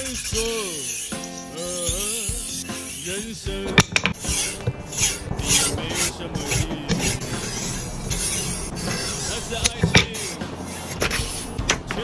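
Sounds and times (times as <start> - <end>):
knife rasping on a strop: 0.0 - 12.0.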